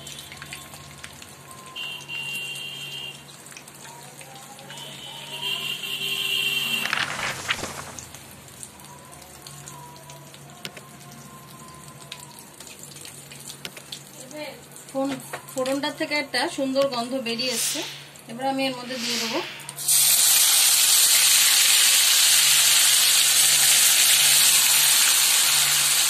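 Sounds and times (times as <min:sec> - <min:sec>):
soft background music: 0:08.4 - 0:17.3
spices sizzling in hot oil: 0:13.2 - 0:26.0
loud whoosh: 0:17.5 - 0:19.8.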